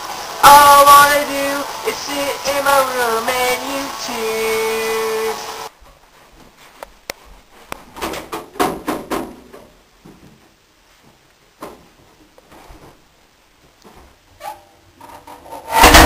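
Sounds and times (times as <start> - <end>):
knocks and bumps in dryer drum: 8.0 - 9.6.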